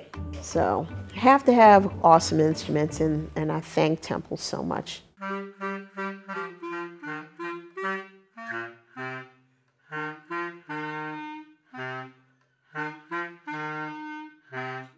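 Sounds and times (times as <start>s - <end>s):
clarinet and bass clarinet duet: 5.2s - 14.9s.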